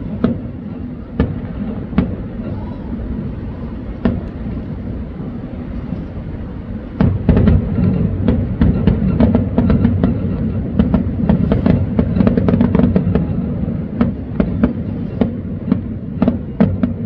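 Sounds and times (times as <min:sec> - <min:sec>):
fireworks shells bursting: 0:00.0 - 0:17.0
steady low rumble: 0:00.0 - 0:17.0.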